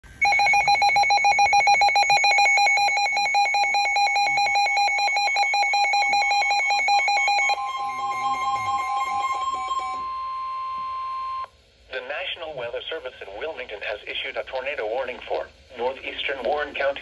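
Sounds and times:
rapid pulsing alarm beep: 0.2 - 11.5
steady alarm tone: 0.2 - 11.5.

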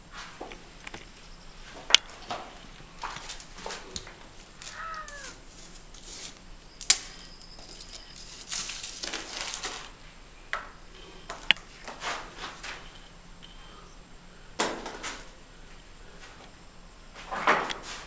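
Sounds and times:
rustling: 0.0 - 14.1
footsteps on dirt and rubble: 0.1 - 6.0.

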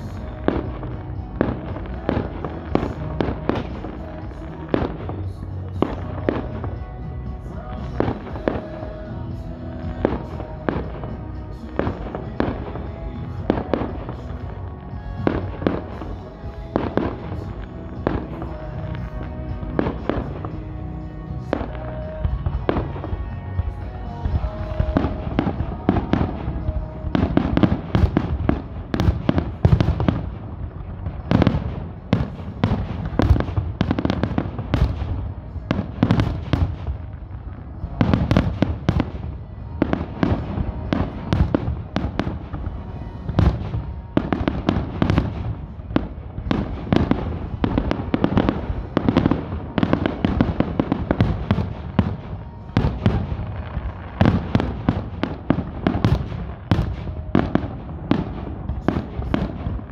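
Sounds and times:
fireworks crackle: 0.0 - 59.9.

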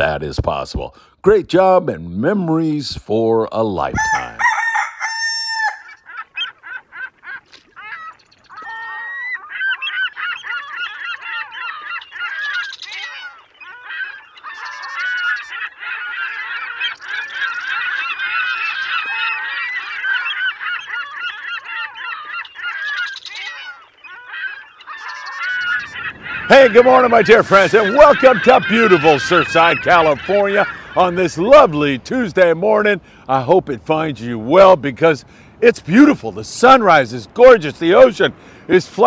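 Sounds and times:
geese honking: 4.0 - 34.8, 35.7 - 39.0.

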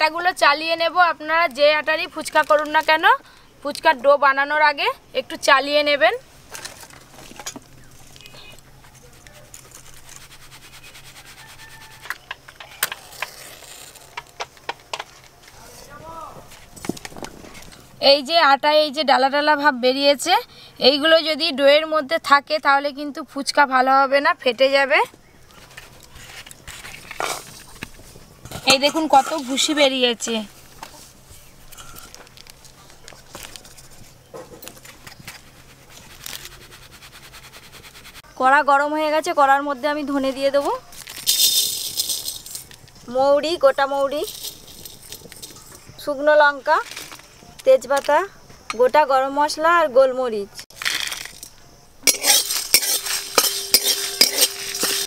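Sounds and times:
flour sifting through sieve: 8.9 - 12.0, 34.8 - 38.2.

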